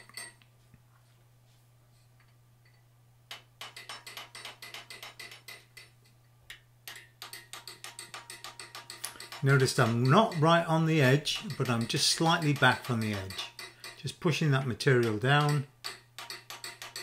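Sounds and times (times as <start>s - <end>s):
rapid hammer taps on metal: 3.3s - 5.9s, 6.9s - 17.0s.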